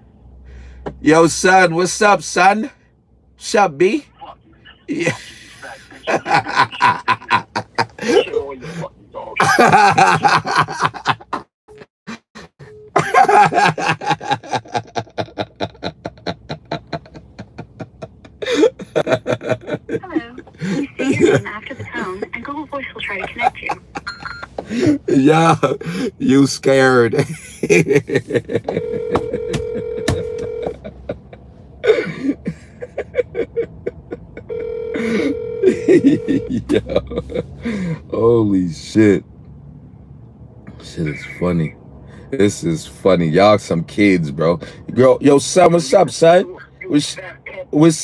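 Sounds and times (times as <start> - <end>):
man laughing hard: 4.9 - 8.3, 9.4 - 11.5, 12.1 - 22.3, 23.3 - 26.0, 27.2 - 37.8
telephone ringback tone: 28.8 - 30.7, 34.5 - 36.5.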